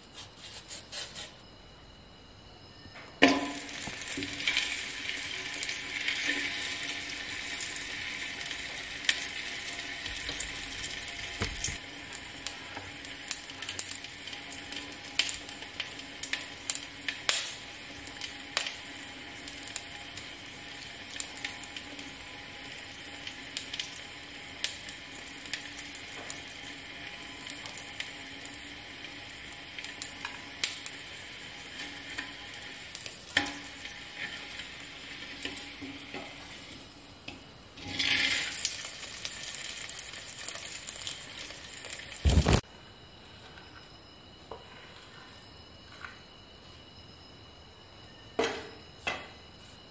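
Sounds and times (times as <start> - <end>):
crackles and pops of spitting oil: 3.2 - 36.4, 37.2 - 42.6
fish frying in oil: 3.5 - 37.0, 37.8 - 42.6.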